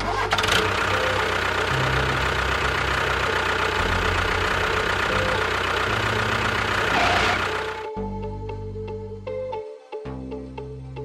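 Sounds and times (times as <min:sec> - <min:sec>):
tractor engine idling: 0:00.0 - 0:07.9
background music: 0:00.0 - 0:11.0.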